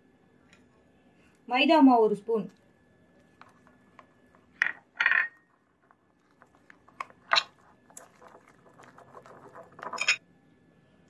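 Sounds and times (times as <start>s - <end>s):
spoon clinking on crockery: 9.8s - 10.2s.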